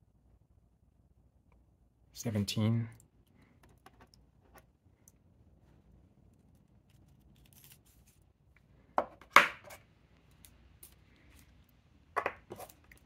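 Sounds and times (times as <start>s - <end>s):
faint paper rustling: 5.6s - 8.8s
rocks clacking on tabletop: 12.2s - 12.7s.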